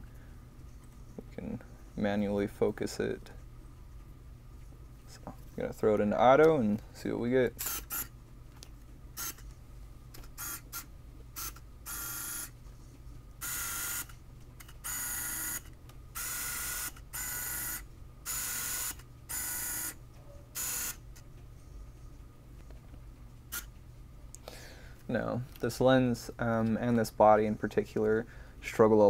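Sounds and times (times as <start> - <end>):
camera autofocus motor whirring: 7.6 - 8.1, 9.2 - 9.4, 10.2 - 12.6, 13.4 - 20.0, 20.6 - 21.0.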